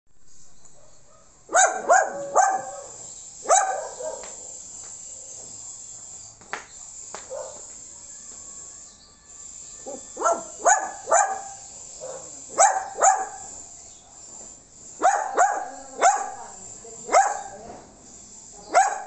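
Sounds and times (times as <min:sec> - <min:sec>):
crickets chirping: 0:00.3 - 0:19.0
small dog yapping: 0:00.8 - 0:04.5, 0:09.9 - 0:13.5, 0:15.0 - 0:16.5, 0:17.1 - 0:17.6, 0:18.7 - 0:19.0.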